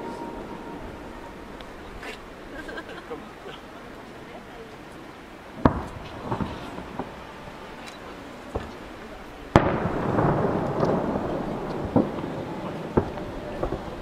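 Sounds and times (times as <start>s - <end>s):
sharp firework bang: 5.6s - 7.1s, 9.6s - 14.0s
firework boom with echoing rumble: 9.5s - 14.0s.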